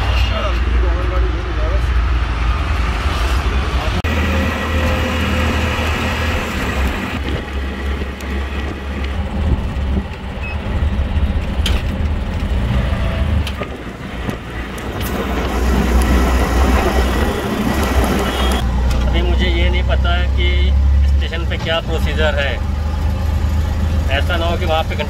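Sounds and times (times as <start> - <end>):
auto-rickshaw engine rumbling: 0.0 - 25.0
road noise: 0.0 - 25.0
wind noise: 2.0 - 18.7.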